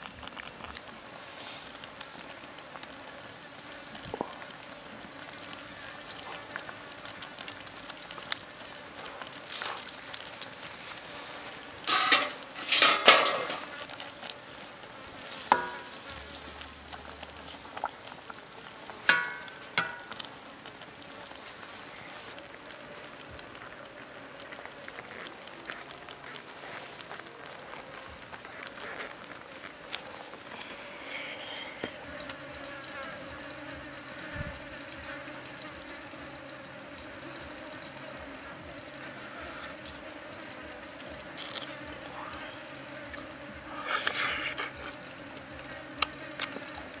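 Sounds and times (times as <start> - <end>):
insects buzzing: 0.0 - 47.0
steady low hiss: 0.0 - 47.0
ladle scraping wok: 11.8 - 14.0
ladle knocking wok: 11.9 - 13.7, 19.1 - 20.2.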